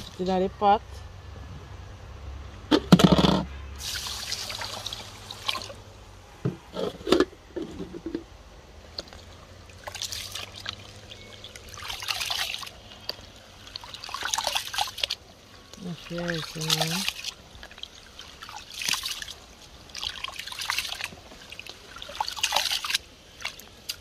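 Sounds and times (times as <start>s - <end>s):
water pouring into basin: 3.8s - 5.8s, 9.2s - 24.0s
rice sloshed by hand: 3.8s - 5.9s, 9.0s - 24.0s.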